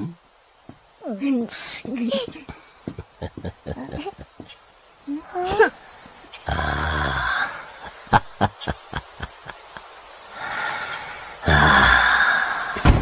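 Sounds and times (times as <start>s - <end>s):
old man laughing breathily: 2.4s - 4.6s, 7.2s - 10.1s.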